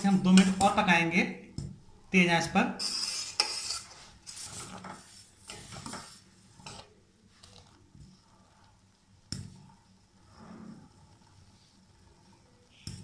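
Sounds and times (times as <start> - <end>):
metal ladle scraping a pan: 2.8 - 7.7.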